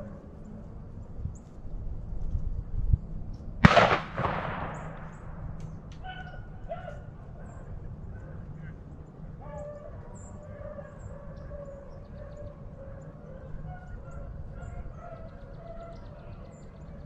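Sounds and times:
wind rumble: 0.0 - 15.5
small birds chirping: 4.6 - 17.0
hounds baying: 6.0 - 17.0.

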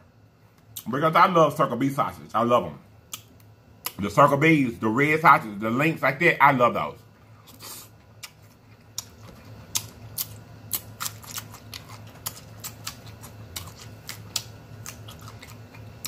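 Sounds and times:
low steady hum: 0.0 - 16.0
wet chewing: 7.5 - 16.0.

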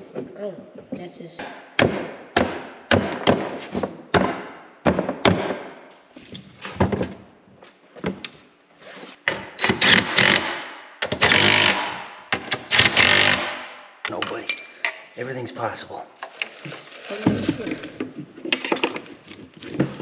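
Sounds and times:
cordless power tool bursts: 11.2 - 12.0.

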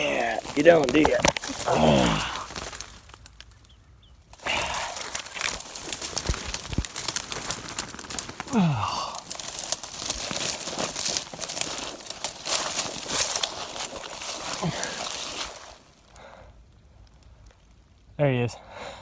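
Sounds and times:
dry leaves and brush crunching: 0.0 - 18.2
person breathing out: 1.5 - 2.7, 4.4 - 5.6, 8.4 - 9.4, 14.4 - 16.6.

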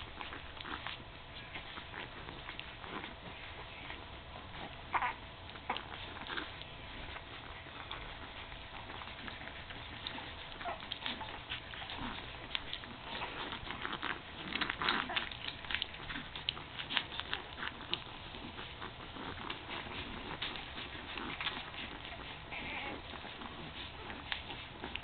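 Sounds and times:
puppies suckling wet clicks: 0.0 - 25.0
puppy squeak: 4.9 - 6.4, 22.1 - 23.1.

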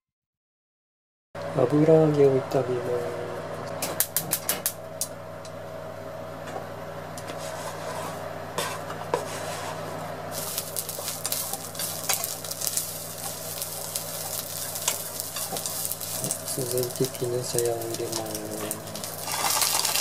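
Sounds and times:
tofu sizzling in a frying pan: 10.3 - 20.0.

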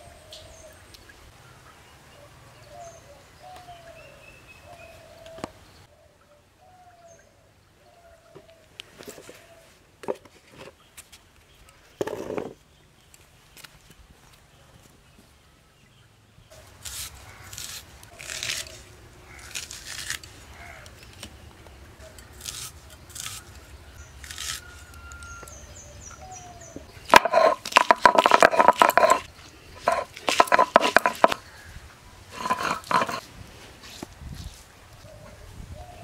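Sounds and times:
garlic skin scraping and crackling: 16.6 - 21.4, 22.1 - 25.6, 27.0 - 31.6, 32.3 - 33.2
stone-on-stone grinding: 27.1 - 31.4, 32.3 - 33.2.

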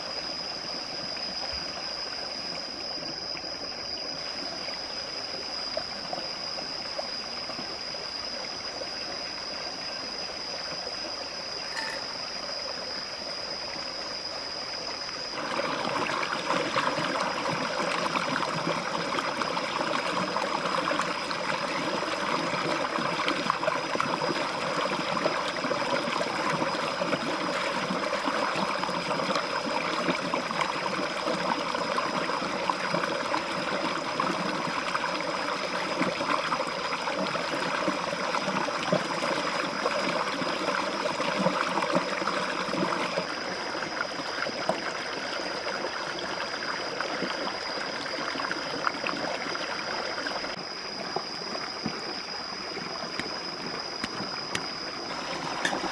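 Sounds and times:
thin steady high tone: 0.0 - 55.9
stream rushing over rocks: 53.2 - 55.9.

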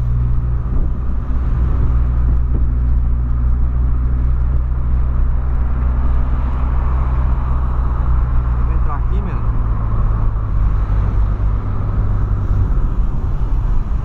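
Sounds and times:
engine and road noise drone: 0.0 - 14.0.

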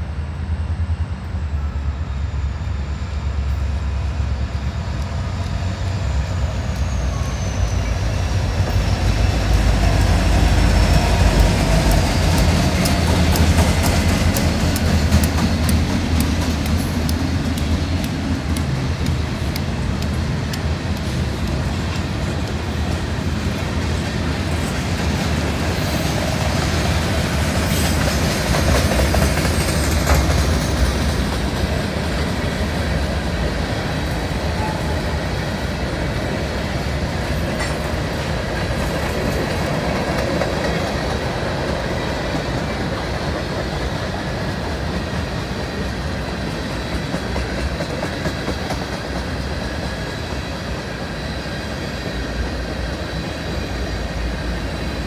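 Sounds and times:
freight train wheels rumbling on rails: 0.0 - 55.0
scattered clicks: 11.9 - 22.6.

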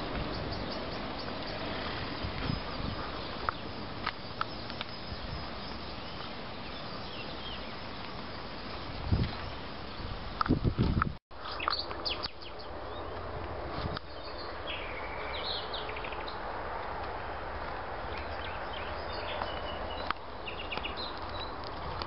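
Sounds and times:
wind rumble on microphone: 0.0 - 11.2, 12.2 - 22.0
outdoor background hiss: 0.0 - 22.0.

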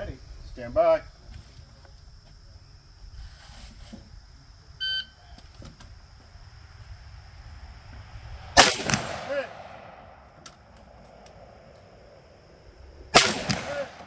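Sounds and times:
insects trilling: 0.0 - 14.0
rifle shot echoing: 8.6 - 10.8, 13.1 - 14.0.

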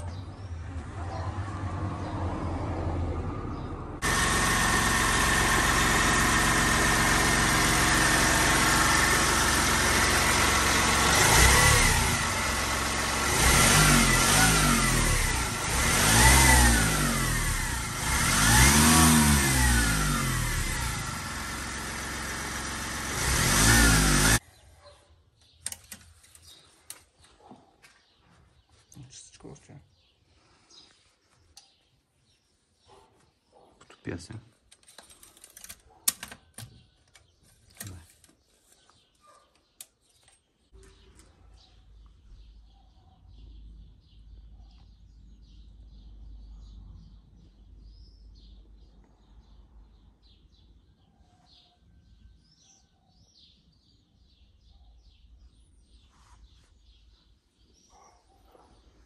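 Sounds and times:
diesel engine idling and revving: 0.0 - 24.4.

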